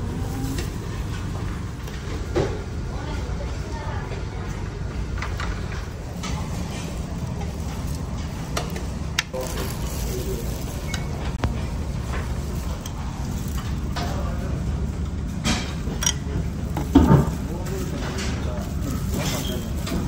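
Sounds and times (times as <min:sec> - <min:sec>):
utensils clinking on bowls and trays: 0:05.1 - 0:14.6, 0:15.3 - 0:20.0.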